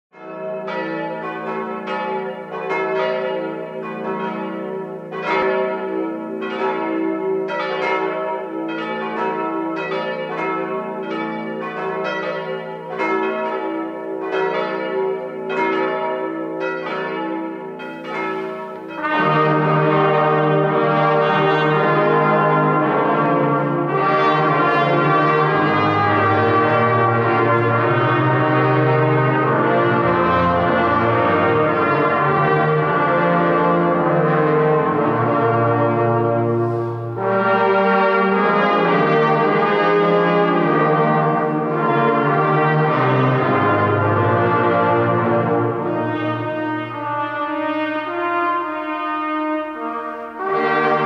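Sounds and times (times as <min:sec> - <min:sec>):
church bells ringing: 0:00.1 - 0:51.0
brass ensemble playing chords: 0:18.0 - 0:51.0
tuba low notes: 0:18.0 - 0:51.0.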